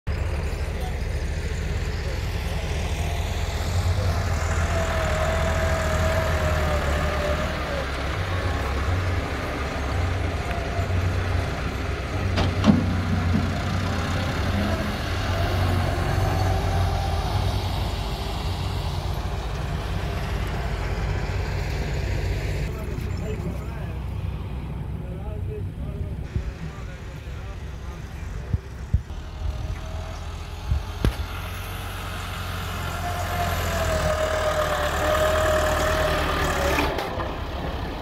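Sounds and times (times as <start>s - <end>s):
diesel engines rumbling: 0.1s - 38.0s.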